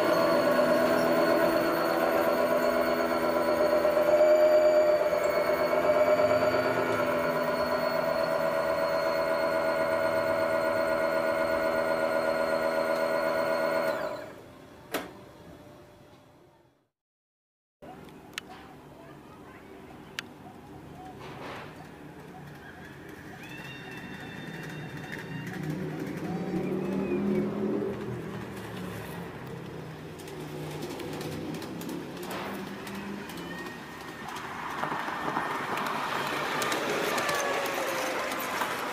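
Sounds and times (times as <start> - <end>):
motor droning: 0.0 - 14.3
steel wheels rolling on rails: 0.0 - 14.3, 22.2 - 38.9
wheels clicking over rail joints: 21.3 - 38.9.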